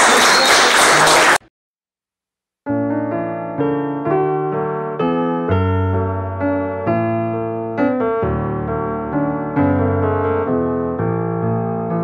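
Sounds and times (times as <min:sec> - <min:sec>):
piano chords: 0:02.7 - 0:12.0.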